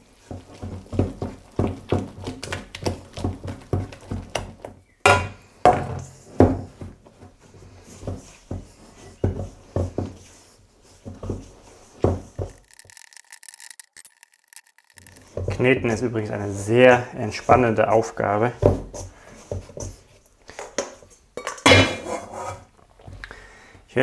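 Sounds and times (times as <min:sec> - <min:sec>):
dough knocking in steel bowl: 0:00.2 - 0:05.8.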